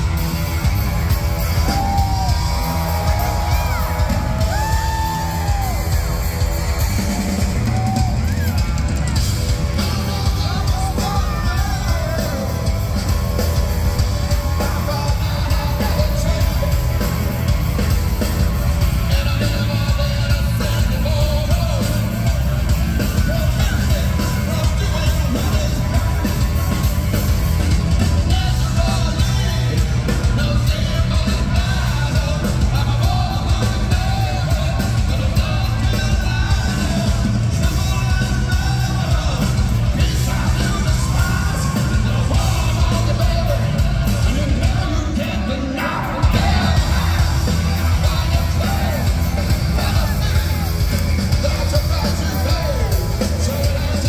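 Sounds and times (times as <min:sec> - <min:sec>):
bass guitar: 0:00.0 - 0:54.0
pounding drum kit: 0:00.0 - 0:54.0
sung and shouted vocals: 0:01.5 - 0:17.7, 0:28.1 - 0:54.0.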